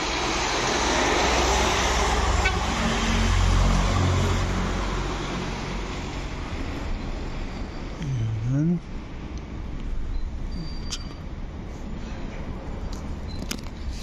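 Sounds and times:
car passing by: 0.0 - 7.5
road traffic hum: 0.0 - 14.0.

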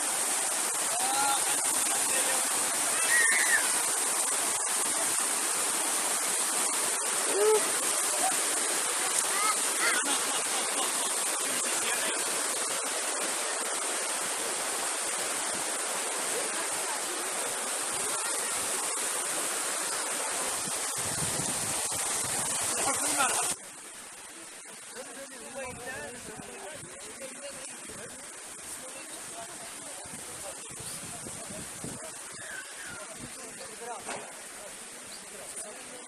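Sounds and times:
river rushing over rocks: 0.0 - 36.0.

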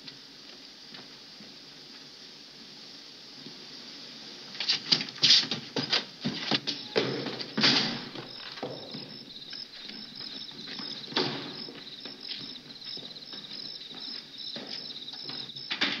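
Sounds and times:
crickets chirping: 0.0 - 16.0
footsteps scuffing across yard: 5.4 - 15.8
loud knocks: 6.6 - 11.8.

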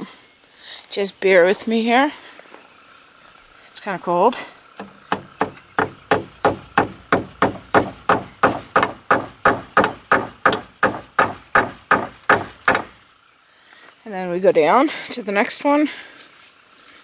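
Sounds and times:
hammer tapping staple: 4.8 - 13.0.

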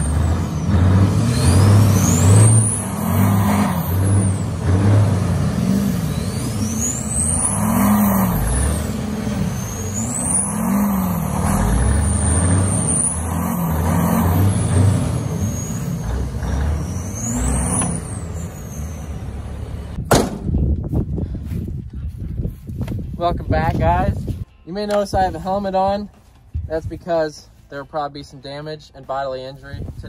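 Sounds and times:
diesel truck engines revving: 0.0 - 20.0
high turbo whistle: 5.6 - 20.0.

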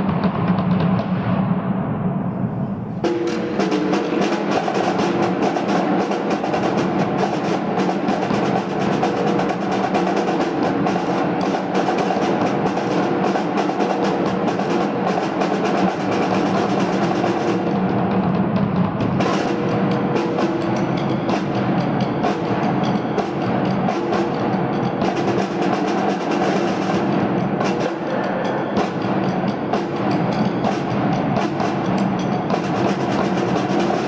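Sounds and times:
snare drums: 0.0 - 1.8, 2.9 - 34.0.

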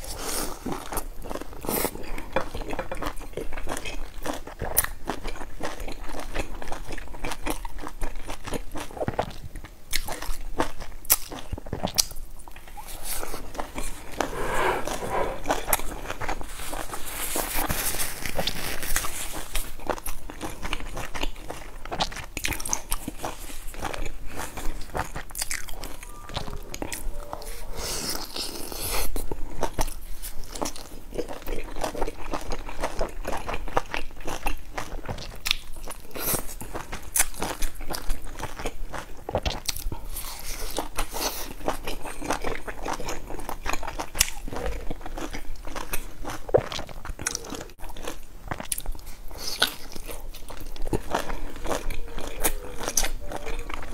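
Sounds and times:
wet chewing clicks: 29.6 - 53.9.

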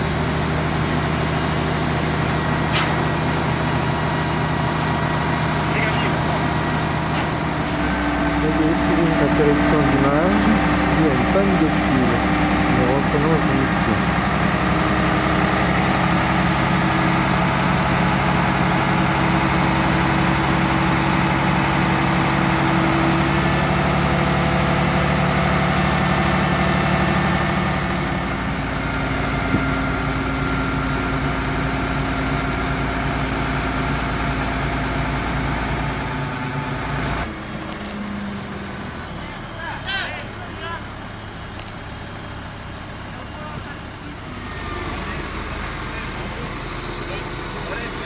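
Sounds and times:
crane diesel engine running: 0.0 - 48.0.

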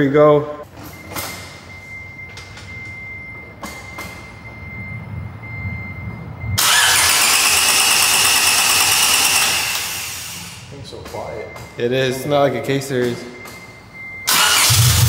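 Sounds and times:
engine cranking on starter: 6.6 - 10.6, 14.3 - 15.0
engine running loudly: 6.6 - 10.6.

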